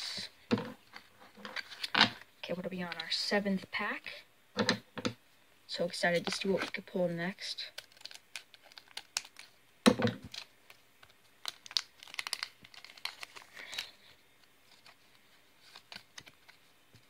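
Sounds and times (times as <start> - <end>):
foil wrapper crinkling: 7.8 - 9.6, 10.3 - 14.0.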